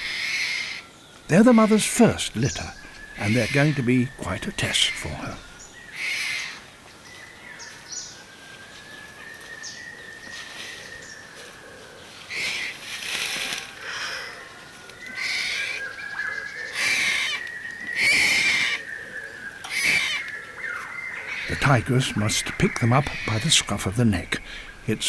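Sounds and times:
tiger cub mewing cries: 0:00.0 - 0:06.6, 0:16.7 - 0:17.4, 0:18.0 - 0:18.8, 0:19.7 - 0:20.3, 0:21.3 - 0:24.8.

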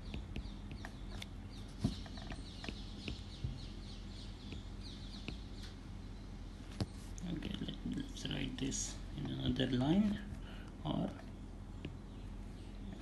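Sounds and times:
low electrical hum: 0:00.0 - 0:13.0
stylus tapping on tablet: 0:01.8 - 0:03.6, 0:04.4 - 0:05.5.

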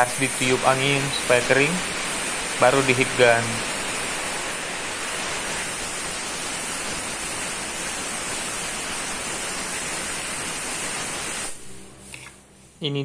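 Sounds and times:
air blow gun hissing: 0:00.0 - 0:12.4.

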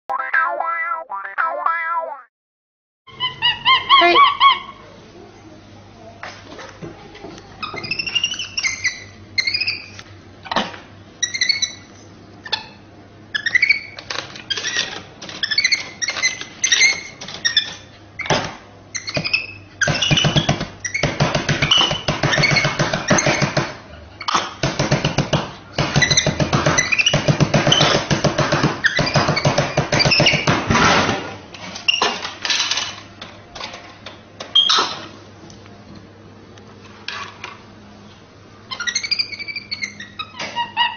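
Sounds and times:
monkey chirping: 0:03.1 - 0:04.8, 0:07.7 - 0:09.9, 0:11.2 - 0:11.9, 0:38.7 - 0:40.9.

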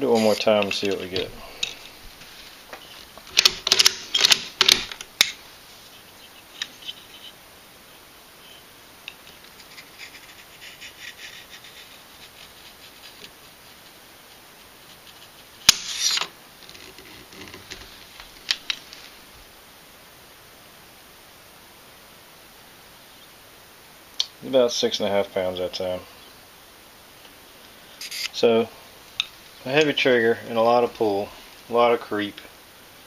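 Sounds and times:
rifle bolt clicks and clacks: 0:03.3 - 0:05.4.

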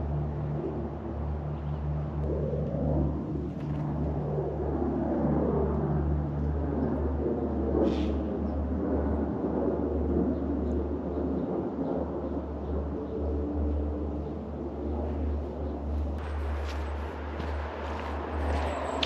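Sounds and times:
road traffic rumble: 0:12.4 - 0:19.0
vehicle passing by: 0:16.2 - 0:19.0.

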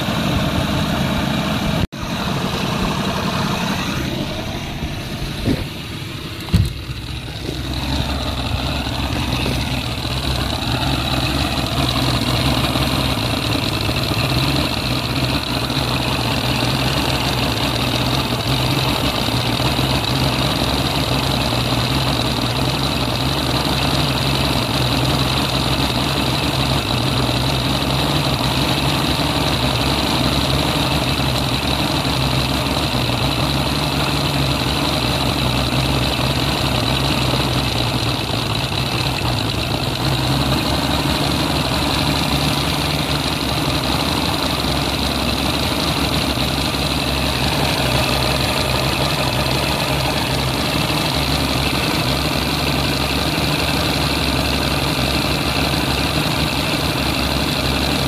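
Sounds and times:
outboard motor idling: 0:00.0 - 0:58.0.

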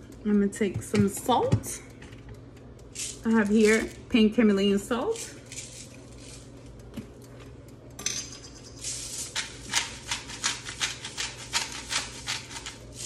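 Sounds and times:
salt grinder crunching: 0:05.2 - 0:06.6, 0:08.8 - 0:13.0.

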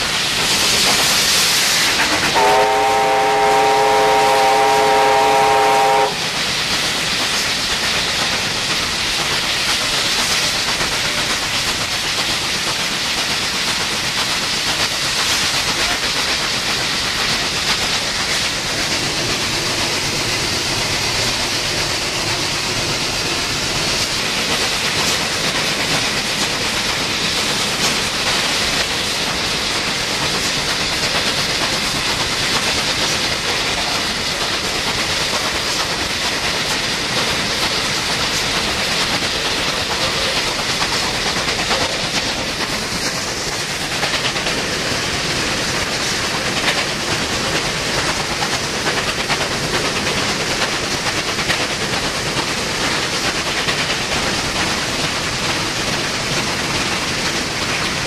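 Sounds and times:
rail and wheel noise: 0:00.0 - 0:58.0
steam hiss: 0:00.0 - 0:58.0.

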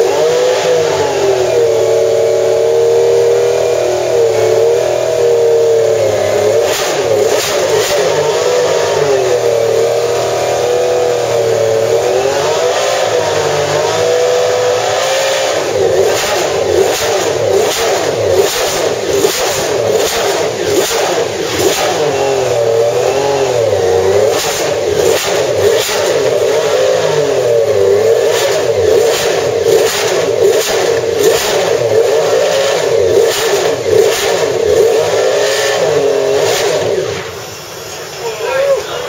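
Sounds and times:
race car engine revving: 0:00.0 - 0:39.0.

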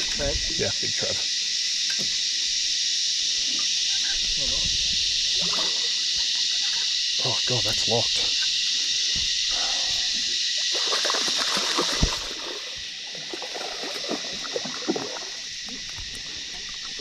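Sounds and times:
insect chorus: 0:00.0 - 0:17.0
water splashing: 0:05.2 - 0:06.3, 0:09.7 - 0:17.0.

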